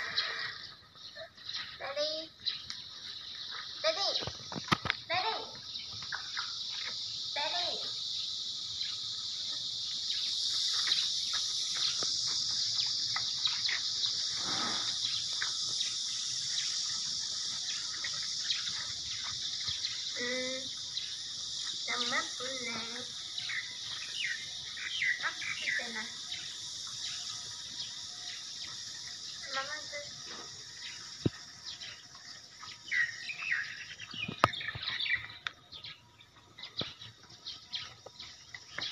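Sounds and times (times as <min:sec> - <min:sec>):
birds chirping: 0:00.0 - 0:38.9
insects chorus: 0:00.0 - 0:38.9
high hiss: 0:06.0 - 0:32.0.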